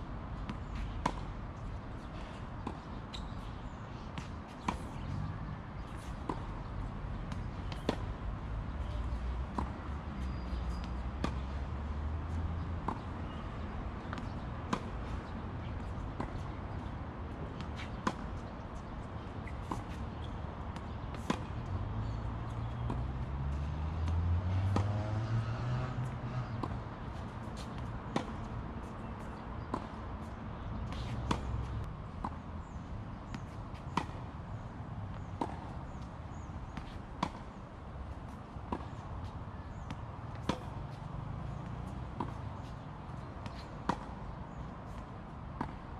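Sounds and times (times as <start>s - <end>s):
tennis ball bouncing: 0.4s - 3.5s, 4.1s - 45.9s
racquets striking tennis ball: 7.3s - 8.2s, 12.8s - 23.2s, 24.0s - 37.6s, 38.3s - 45.0s.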